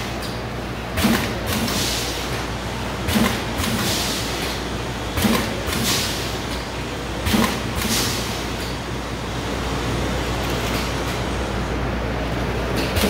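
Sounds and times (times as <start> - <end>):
packing machine clack: 0.0 - 8.9, 12.7 - 13.0
steady machine hum: 0.0 - 13.0.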